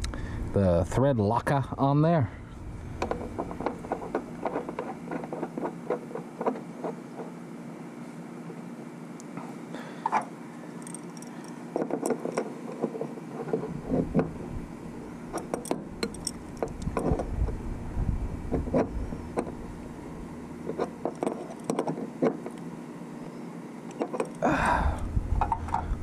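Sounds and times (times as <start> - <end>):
wrench clinking on metal: 10.8 - 12.4, 15.4 - 17.3, 23.9 - 24.4.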